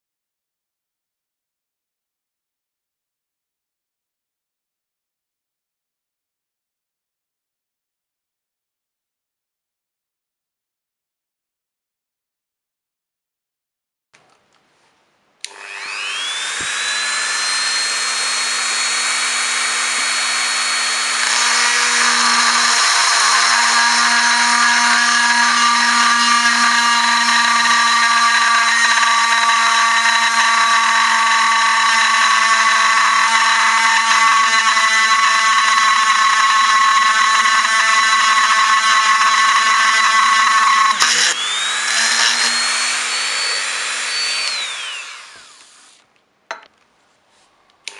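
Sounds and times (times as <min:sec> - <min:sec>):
drill grinding into glass bottle: 0:15.5 - 0:46.0
rotary tool whining: 0:15.5 - 0:46.0.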